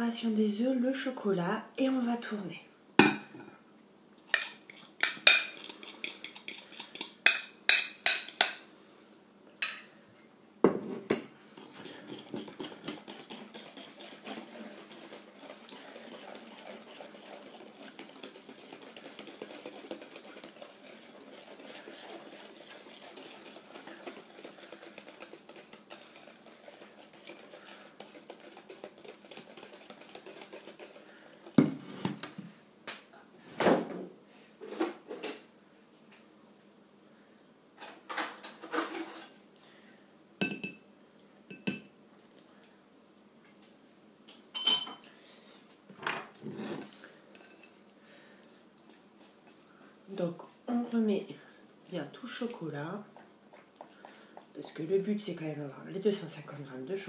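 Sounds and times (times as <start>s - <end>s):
steady whisking: 4.3s - 8.6s, 11.2s - 32.3s, 46.4s - 51.1s, 52.0s - 57.0s
whisk clinking on glass bowl: 11.1s - 31.0s.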